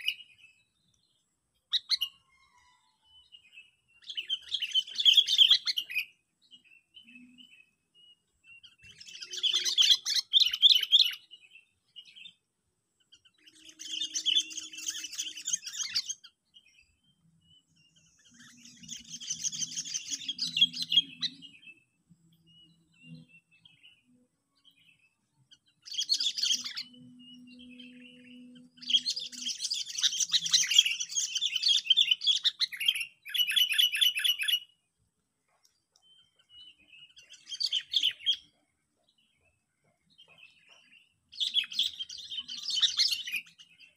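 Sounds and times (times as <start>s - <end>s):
bird chattering song: 0.0s - 12.4s, 13.0s - 34.9s, 35.6s - 43.9s.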